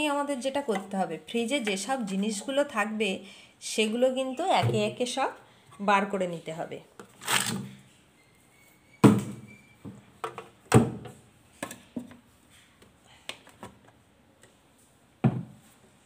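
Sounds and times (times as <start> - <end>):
containers knocking and thunking: 4.5 - 5.0, 9.0 - 12.2, 15.2 - 15.6.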